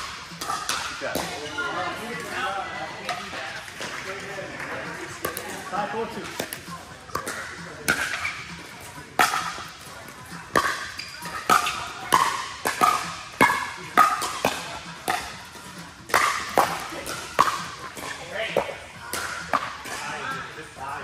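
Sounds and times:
paddles hitting plastic ball: 0.0s - 1.3s, 6.2s - 8.3s, 10.5s - 20.0s.

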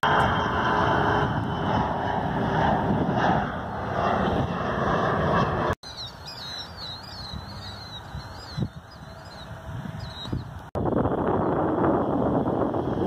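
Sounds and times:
jet engine noise with whine: 0.0s - 13.0s
small birds chirping: 5.8s - 10.6s.

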